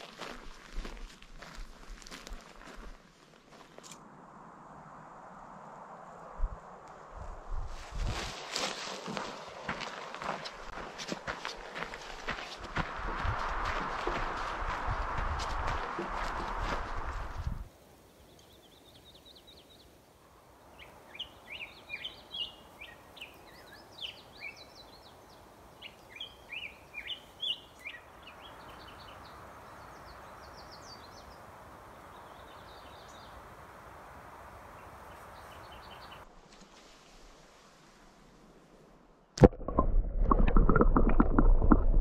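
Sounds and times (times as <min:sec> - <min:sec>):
creek running over rocks: 0:08.0 - 0:17.7, 0:39.4 - 0:42.0
small birds chirping: 0:20.7 - 0:33.5, 0:34.5 - 0:36.2.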